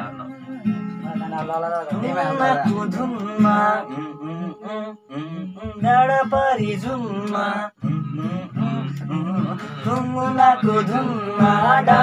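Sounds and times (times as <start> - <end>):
acoustic guitar: 0.0 - 12.0
young men singing: 1.1 - 12.0.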